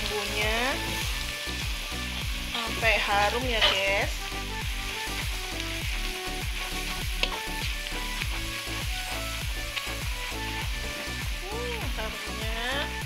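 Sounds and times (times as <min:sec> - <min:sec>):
spice paste sizzling in oil: 0:00.0 - 0:13.0
metal spatula tapping pan: 0:03.1 - 0:04.1.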